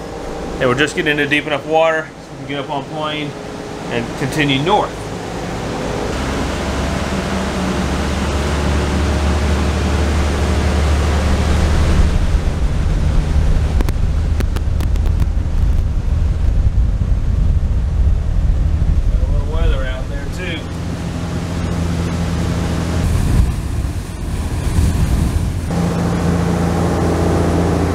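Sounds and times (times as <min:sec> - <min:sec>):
boat diesel engines droning: 0:00.0 - 0:27.9
wind: 0:00.0 - 0:27.9
rushing water: 0:03.4 - 0:15.2.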